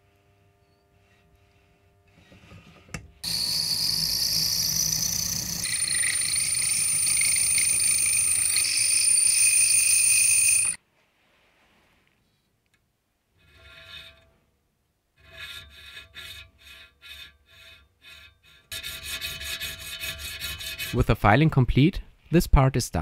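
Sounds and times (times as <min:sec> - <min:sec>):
machine tool whine: 0:03.2 - 0:10.8.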